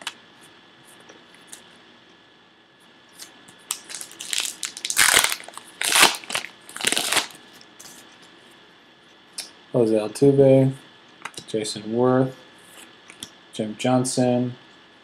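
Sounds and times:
wrapper tearing and crinkling: 3.2s - 7.4s.

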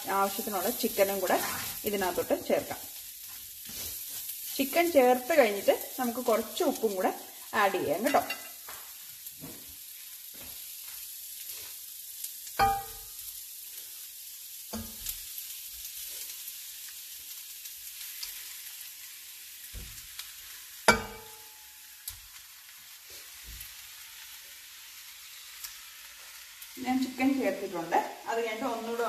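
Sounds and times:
food sizzling in a frying pan: 0.0s - 29.0s.

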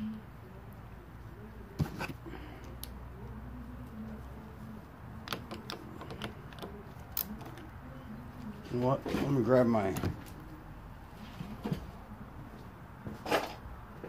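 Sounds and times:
low steady hum: 0.0s - 14.0s
socket ratchet clicking: 5.2s - 7.6s.

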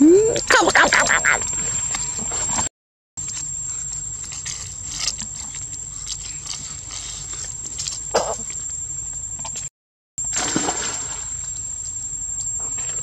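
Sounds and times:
monkey squeaky calls: 0.2s - 1.4s.

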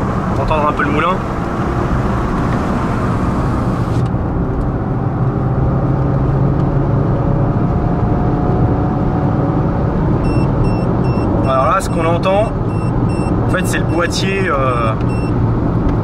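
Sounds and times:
car engine accelerating: 0.0s - 16.0s
road noise: 0.0s - 16.0s
rapid beeping: 10.2s - 14.2s.

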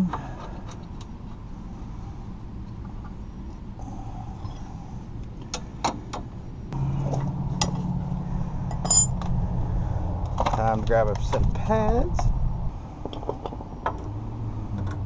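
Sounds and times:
steady low hum: 0.0s - 15.0s
metal tools clinking: 8.7s - 9.2s.

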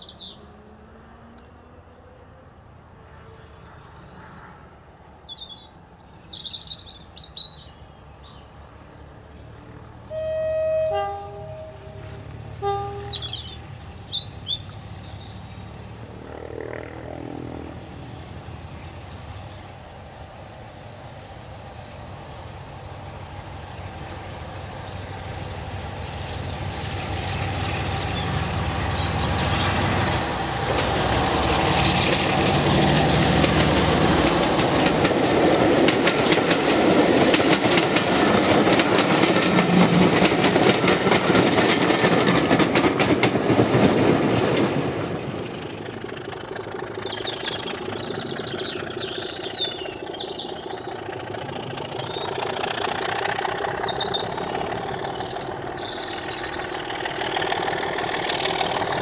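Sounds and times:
diesel locomotive engine: 0.0s - 59.0s
train horn: 10.0s - 13.4s
birds chirping: 11.6s - 15.8s, 45.5s - 57.4s, 58.3s - 59.0s.

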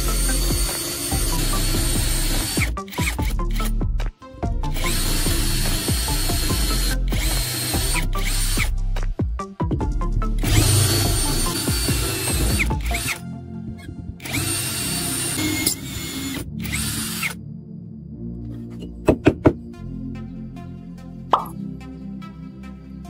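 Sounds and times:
electric power tool running: 0.0s - 3.3s, 4.7s - 8.7s, 10.4s - 13.2s, 13.8s - 17.4s
background music: 0.0s - 23.0s.

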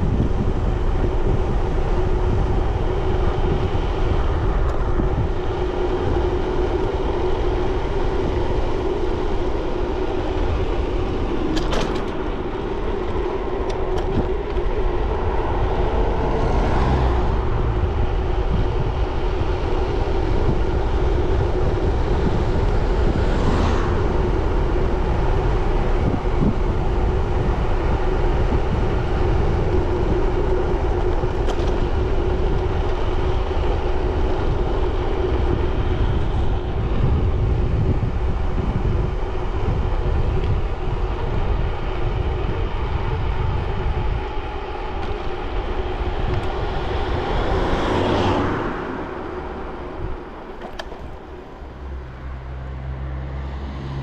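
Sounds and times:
bicycle road noise: 0.0s - 54.0s
wind rushing over microphone: 0.0s - 54.0s
whoosh passing: 22.6s - 25.0s.

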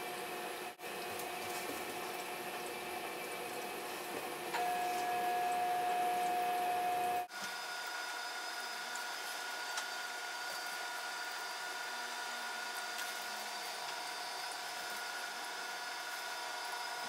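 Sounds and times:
aquarium equipment humming: 0.0s - 17.0s
loud single-pitch whine: 4.5s - 17.0s.

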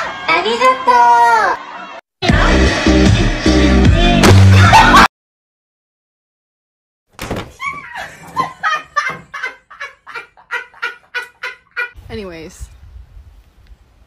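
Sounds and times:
person laughing hard: 4.5s - 5.1s, 7.6s - 12.0s.

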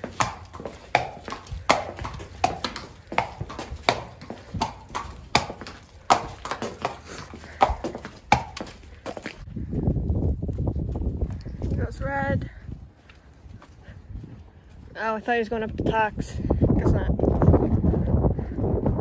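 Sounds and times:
horse hooves clip-clopping: 0.0s - 12.1s.

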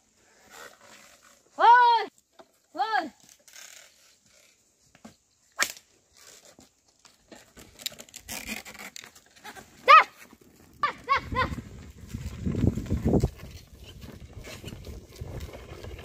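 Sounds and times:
plough scraping through soil: 0.1s - 4.9s, 6.0s - 16.0s
sharp crack: 5.6s - 5.9s.

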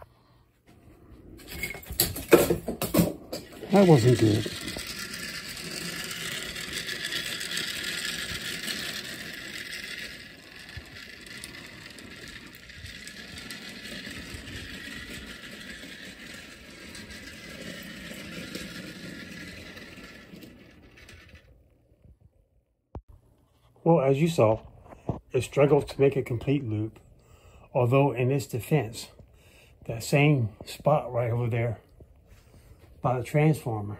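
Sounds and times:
toy train wheels rattling: 1.5s - 21.6s
clockwork motor whirring: 3.4s - 21.6s.

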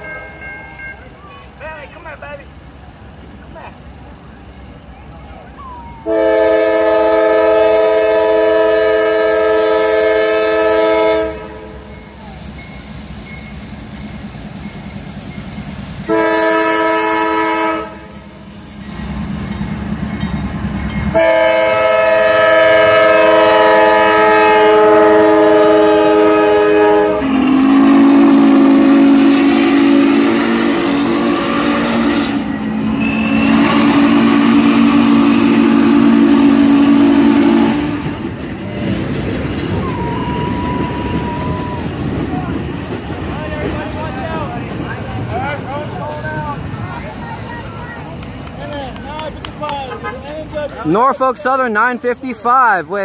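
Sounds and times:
train cars rolling by: 0.0s - 53.0s
steam whistle blowing: 5.8s - 12.2s, 16.0s - 18.4s, 21.1s - 38.2s, 39.8s - 41.9s.

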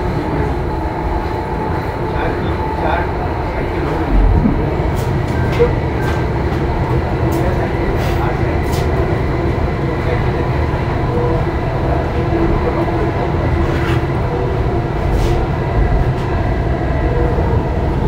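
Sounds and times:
train wheels rumbling on track: 0.0s - 18.0s.

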